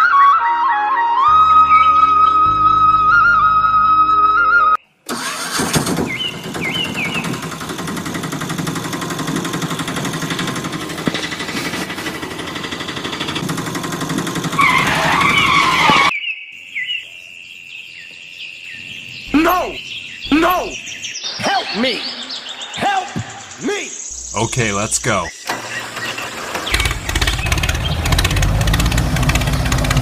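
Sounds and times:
small motor vehicle engine: 5.1 - 16.1, 25.4 - 30.0
birds chirping: 5.8 - 28.9
wavering squeal: 14.5 - 16.1.

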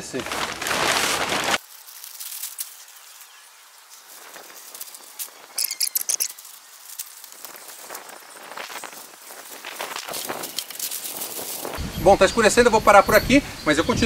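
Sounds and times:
high-pitched chirping trill: 5.5 - 6.6.

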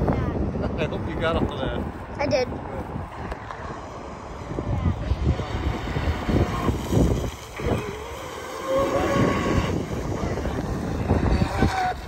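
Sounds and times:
rc boat motor whine: 3.0 - 12.0.

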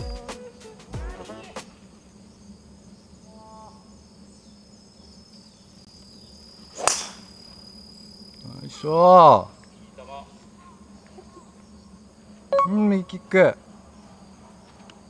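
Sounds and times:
high-pitched insect drone: 0.0 - 15.0
golf club striking ball: 6.8 - 7.3.

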